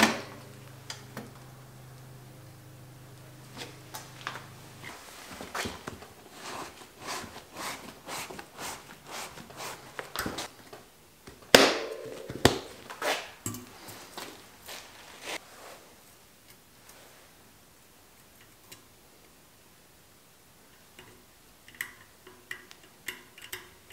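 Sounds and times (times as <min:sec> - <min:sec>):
tire snapping onto rim: 0:00.0 - 0:01.4
tire bead rubbing against rim: 0:00.4 - 0:10.5.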